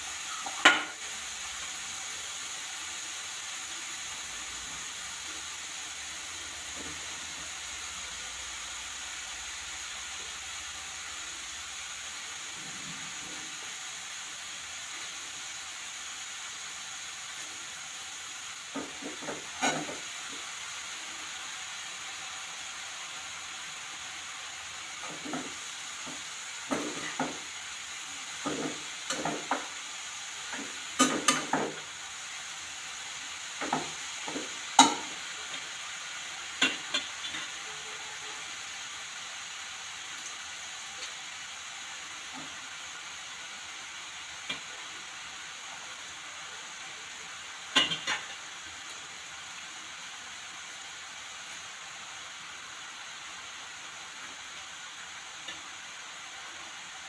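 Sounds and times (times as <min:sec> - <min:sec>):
food sizzling in a pan: 0:00.0 - 0:57.0
metal spatula scraping a pan: 0:18.8 - 0:20.1.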